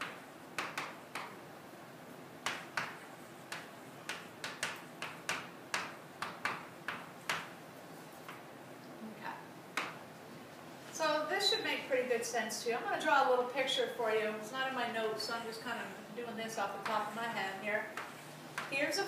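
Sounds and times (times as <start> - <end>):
chalk tapping on chalkboard: 0.0 - 1.4, 2.4 - 7.5, 9.8 - 10.0, 16.8 - 18.8.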